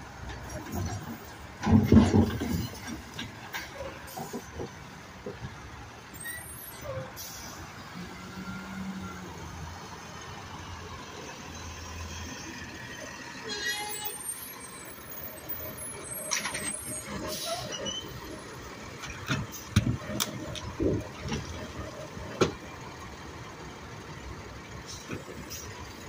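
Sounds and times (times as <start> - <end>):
garbage truck running: 0.0 - 26.0
metallic knocks and clanks: 0.3 - 5.5
brief squeal: 6.2 - 9.2, 13.4 - 18.2.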